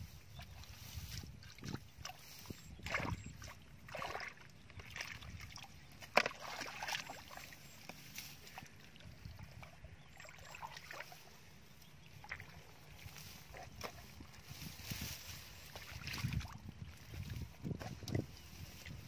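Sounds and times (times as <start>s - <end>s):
hands splashing in muddy water: 0.4s - 8.8s.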